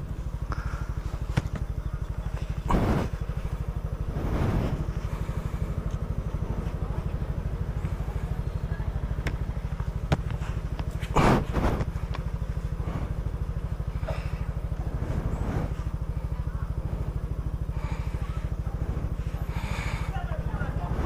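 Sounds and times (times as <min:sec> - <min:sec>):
rush of noise: 0:02.0 - 0:05.7, 0:10.4 - 0:20.1, 0:20.7 - 0:21.0.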